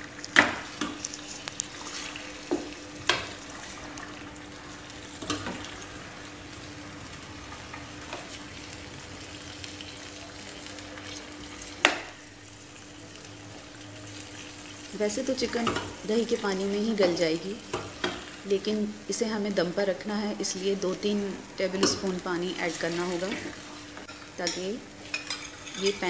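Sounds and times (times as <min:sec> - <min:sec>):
chicken sizzling in oil: 0:00.0 - 0:26.0
metal spoon scraping a pan: 0:22.8 - 0:26.0.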